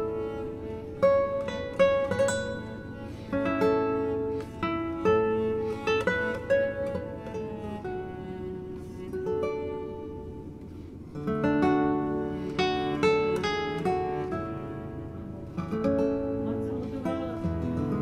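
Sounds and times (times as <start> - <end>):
acoustic guitar picking notes: 0.0 - 18.0
strummed guitar chords: 0.0 - 18.0.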